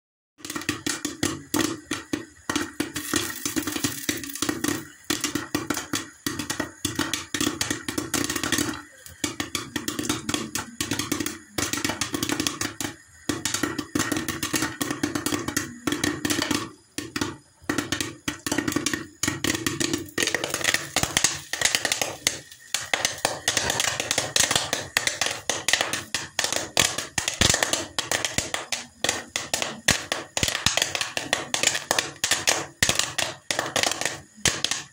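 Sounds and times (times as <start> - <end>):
kernels hitting glass lid: 0.4 - 10.2, 17.6 - 34.9
popcorn popping in a pan: 0.4 - 34.9.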